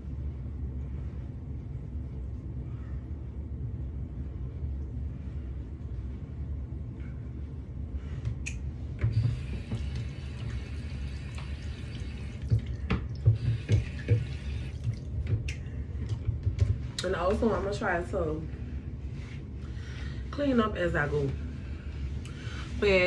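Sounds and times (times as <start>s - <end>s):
low steady hum: 0.0s - 23.0s
tap running: 8.2s - 17.4s
clicks and knocks of handwashing: 12.4s - 17.4s.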